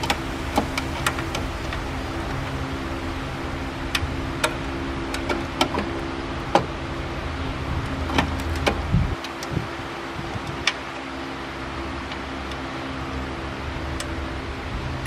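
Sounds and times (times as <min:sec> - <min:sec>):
low rumble: 0:00.0 - 0:05.2
mechanical hum: 0:00.0 - 0:15.0.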